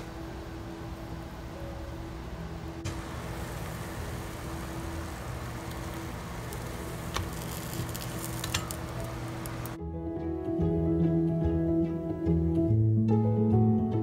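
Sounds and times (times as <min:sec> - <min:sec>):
egg and cheese sizzling: 0:02.2 - 0:09.8
light clicks of waffle maker: 0:05.6 - 0:09.8.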